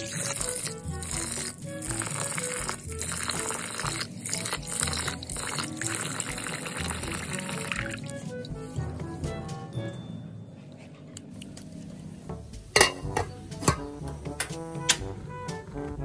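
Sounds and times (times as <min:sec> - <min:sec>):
tap water running into metal pot: 0:00.0 - 0:08.2
rice being rinsed: 0:00.0 - 0:08.6
background music: 0:00.0 - 0:11.3, 0:11.9 - 0:16.0.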